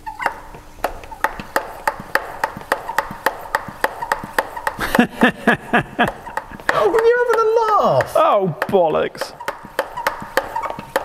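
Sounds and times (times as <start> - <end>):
short falling squeaks: 0.0 - 4.8, 9.2 - 11.0
hand pump clicking: 0.0 - 5.1, 6.0 - 11.0.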